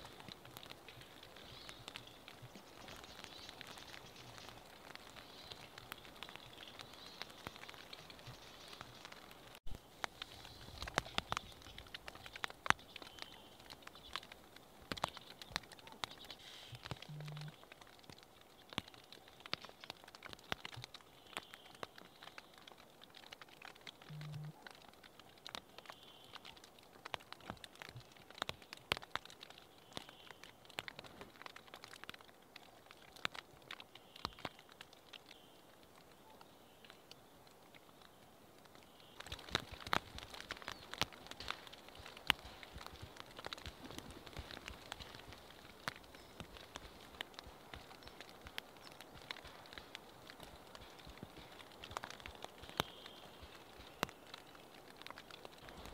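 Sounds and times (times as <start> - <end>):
bird display song clicks: 0.4 - 9.3, 10.2 - 17.7, 18.5 - 22.7, 25.7 - 26.7, 29.5 - 30.6, 38.8 - 54.7.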